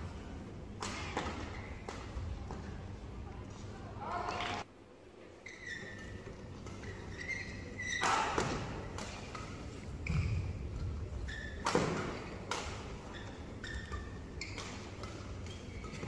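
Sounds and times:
indoor hall hum: 0.0s - 16.0s
rackets hitting shuttlecock: 0.7s - 2.7s, 7.9s - 16.0s
shoes squeaking on court: 5.4s - 16.0s.

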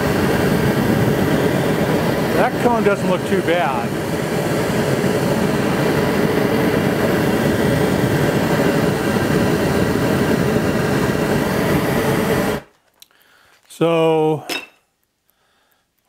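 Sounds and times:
gas burner rushing: 0.0s - 12.7s.

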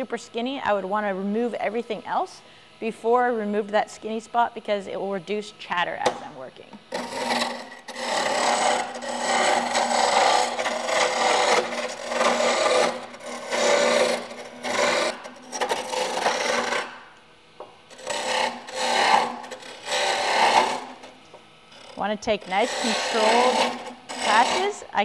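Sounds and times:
lathe gouge rasping wood: 6.9s - 17.0s, 17.9s - 24.9s.

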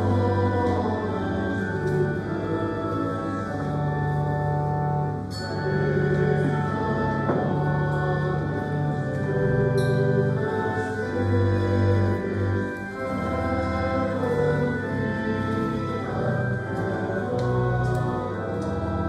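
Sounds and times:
church organ: 0.0s - 19.0s
voices singing a hymn: 0.0s - 19.0s.

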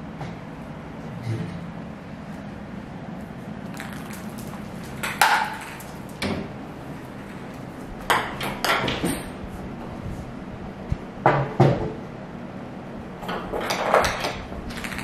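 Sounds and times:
plastic ball bouncing on tile floor: 3.7s - 6.4s, 13.7s - 15.0s.

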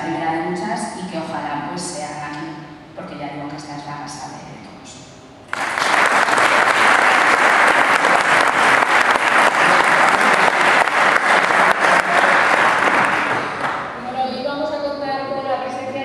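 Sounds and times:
audience applauding: 5.5s - 14.0s.

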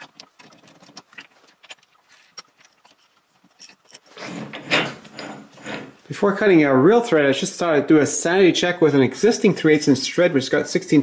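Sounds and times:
metal gears clicking and clinking: 2.4s - 5.9s.

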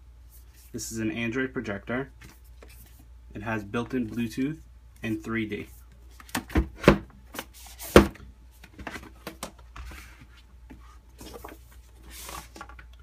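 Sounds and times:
card and paper rustling: 8.6s - 12.9s.

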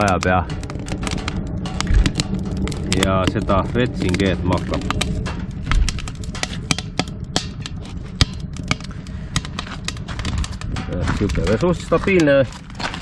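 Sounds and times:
firewood crackling in a stove: 0.0s - 13.0s
low steady rumble: 0.0s - 13.0s.

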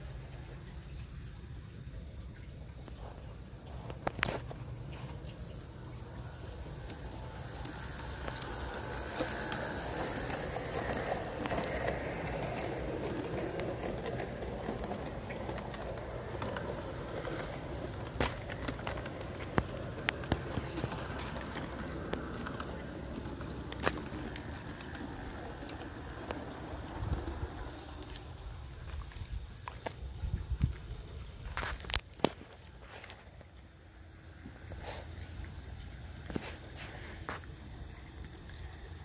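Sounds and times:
model train wheels rumbling: 0.0s - 30.2s.

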